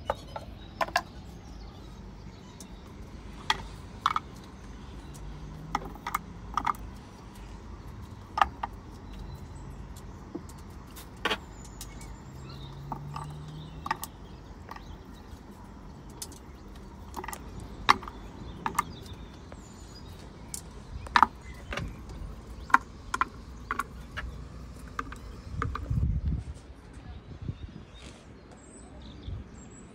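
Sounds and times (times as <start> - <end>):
kitchen items clicking and knocking: 2.6 - 9.4, 10.0 - 26.0.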